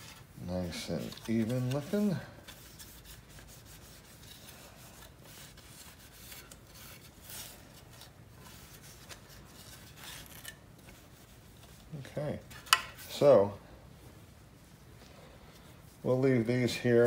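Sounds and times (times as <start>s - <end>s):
cloth rubbing on trim: 0.0s - 13.5s.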